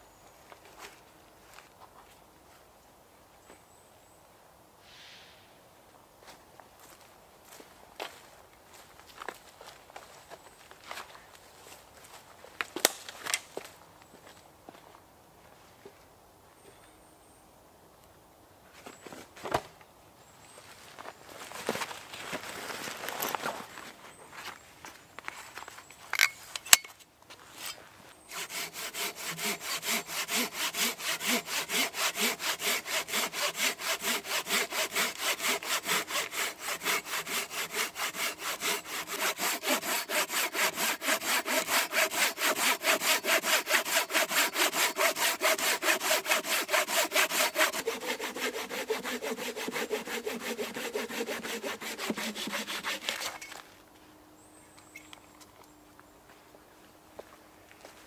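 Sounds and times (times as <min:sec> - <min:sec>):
hand saw cutting log: 0:27.6 - 0:53.6.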